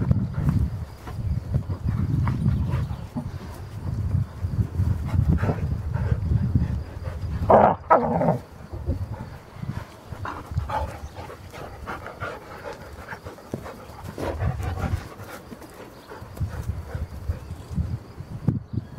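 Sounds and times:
dogs panting: 0:00.0 - 0:07.5, 0:08.4 - 0:17.9
dogs' rough vocal noises: 0:04.7 - 0:17.6.

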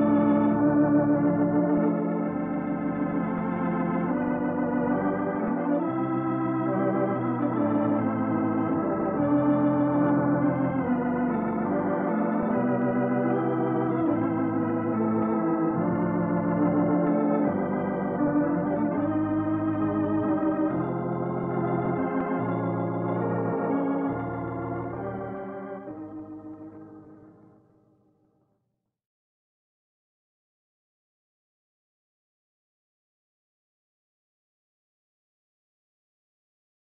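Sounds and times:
organ chords: 0:00.0 - 0:27.8.

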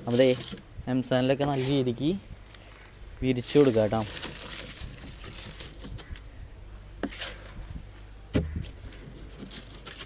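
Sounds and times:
gritty sand scraping: 0:00.0 - 0:00.6, 0:01.3 - 0:06.3, 0:07.0 - 0:07.9.

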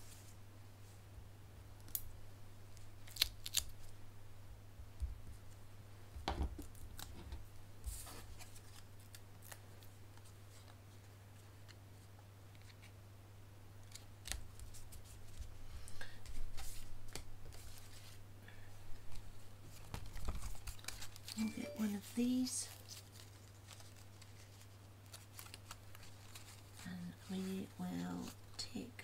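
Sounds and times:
low steady hum: 0:00.0 - 0:29.0
paper clicks and rustles: 0:19.0 - 0:21.4, 0:22.6 - 0:27.2.

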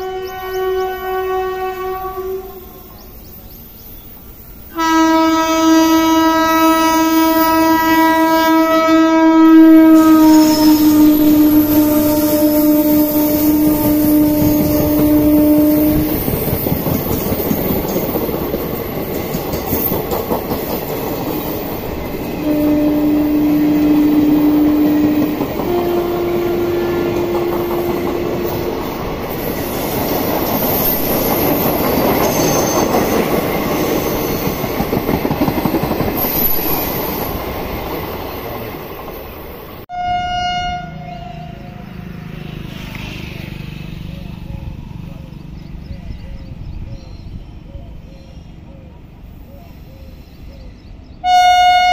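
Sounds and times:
train horn: 0:00.0 - 0:03.2, 0:04.7 - 0:16.5, 0:22.4 - 0:29.8, 0:39.9 - 0:42.0, 0:51.2 - 0:51.9
train coaches clickety-clack: 0:09.7 - 0:39.8.

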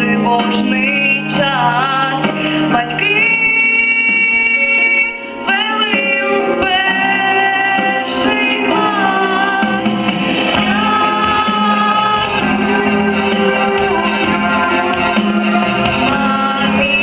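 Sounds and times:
woman singing into a microphone: 0:00.0 - 0:09.9, 0:10.6 - 0:17.0
instrumental accompaniment: 0:00.0 - 0:17.0
singer breathing: 0:02.2 - 0:02.7.

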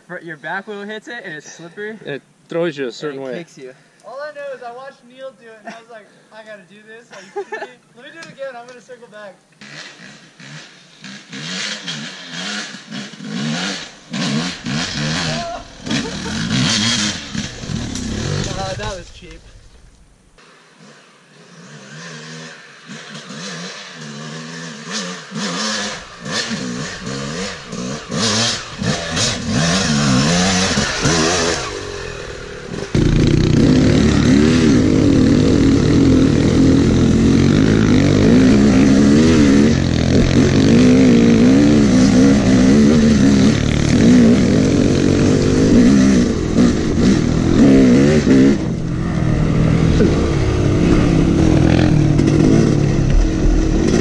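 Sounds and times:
dirt bike engine revving: 0:09.6 - 0:19.0, 0:20.4 - 0:54.0.

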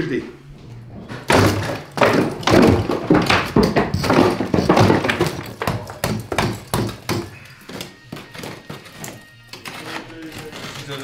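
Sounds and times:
hammer knocking plaster: 0:01.2 - 0:09.1
plaster cracking away: 0:01.2 - 0:11.0.

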